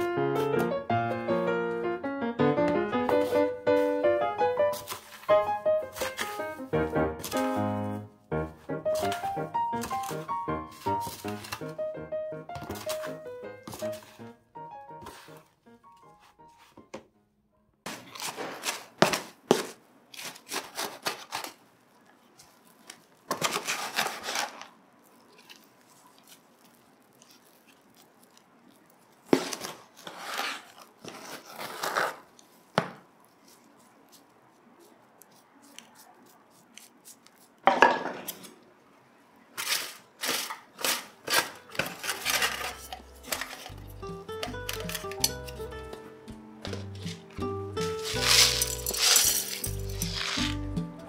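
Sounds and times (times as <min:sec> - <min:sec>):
rustling and scraping: 0:03.1 - 0:04.1, 0:04.7 - 0:08.0, 0:08.9 - 0:11.7, 0:12.6 - 0:14.3, 0:22.3 - 0:38.6, 0:39.6 - 0:45.6, 0:46.6 - 0:50.8.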